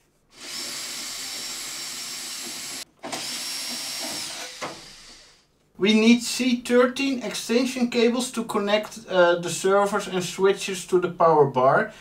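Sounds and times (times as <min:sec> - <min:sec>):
cordless drill whining: 0:00.3 - 0:05.4.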